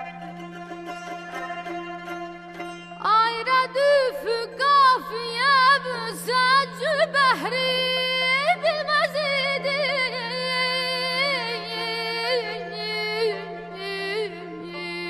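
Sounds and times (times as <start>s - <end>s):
woman singing wordless melisma: 3.0s - 15.0s.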